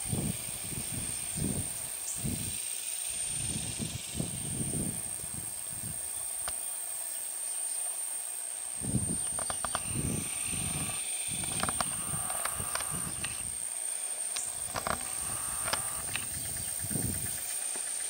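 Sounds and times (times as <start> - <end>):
steady high-pitched whine: 8.7 - 18.0
small clicks: 9.3 - 9.9, 11.4 - 13.5, 14.4 - 16.3.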